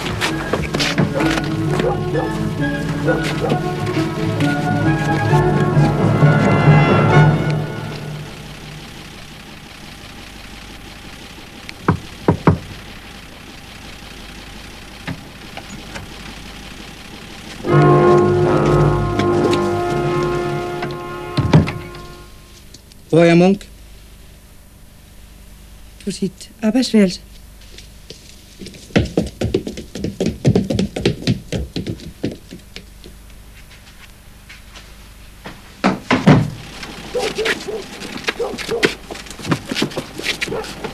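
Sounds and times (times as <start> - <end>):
quick footsteps on stairs: 0.0 - 6.6, 10.7 - 13.6, 18.2 - 22.1, 27.6 - 40.9
low steady hum: 0.0 - 40.9
knocks on a door: 11.8 - 12.7, 21.4 - 21.8, 35.8 - 36.6.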